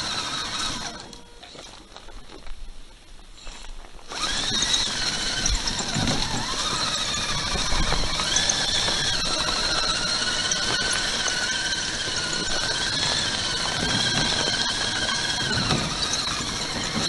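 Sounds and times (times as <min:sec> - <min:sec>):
toy truck motor whine: 0:00.0 - 0:02.0, 0:03.4 - 0:17.0.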